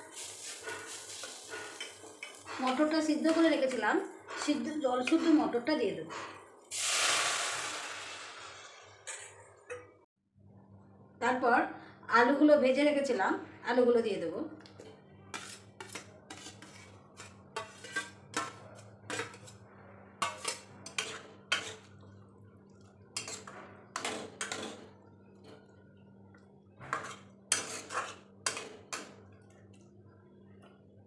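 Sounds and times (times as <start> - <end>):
spatula scraping steel bowl and pan: 0.0 - 6.4, 15.3 - 22.0, 23.2 - 24.9, 26.8 - 29.0.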